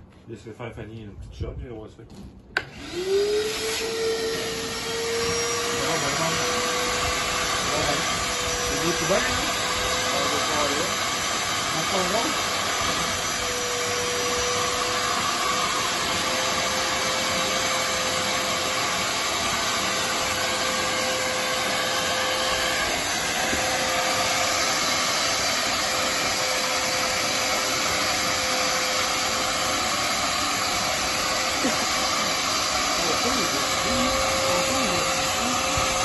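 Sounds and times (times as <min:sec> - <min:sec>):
shop vacuum sucking water: 0:02.6 - 0:36.0.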